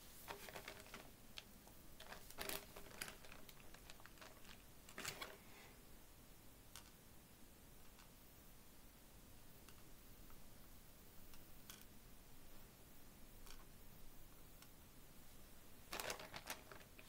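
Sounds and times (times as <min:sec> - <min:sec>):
plastic bag crinkling: 0:00.2 - 0:01.2, 0:02.0 - 0:05.6, 0:15.9 - 0:17.0
plastic beads rattling: 0:00.3 - 0:01.1, 0:02.0 - 0:05.4, 0:15.9 - 0:17.0.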